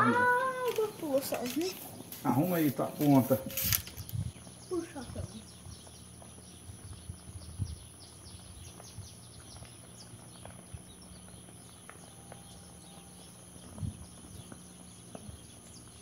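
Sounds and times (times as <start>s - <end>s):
steady very high tone: 0.0s - 1.4s
high falling chirps: 0.0s - 6.6s.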